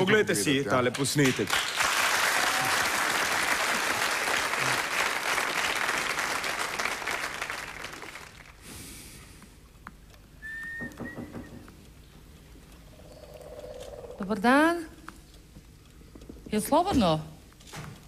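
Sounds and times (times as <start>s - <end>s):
studio audience applauding: 0.8s - 8.6s.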